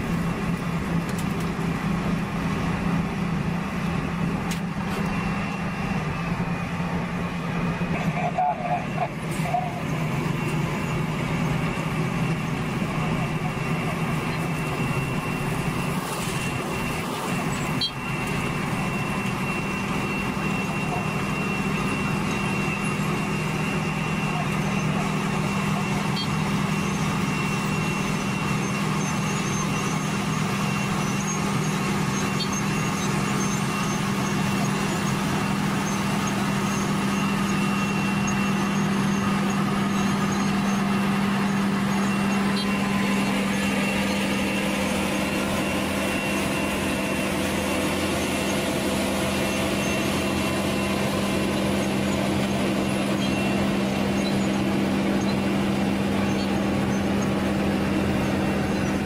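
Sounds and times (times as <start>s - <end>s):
heavy diesel engines droning: 0.0s - 59.0s.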